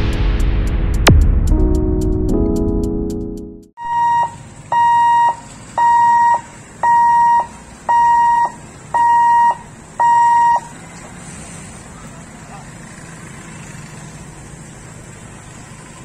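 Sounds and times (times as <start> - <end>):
high-pitched warning buzzer beeps: 3.8 - 10.7.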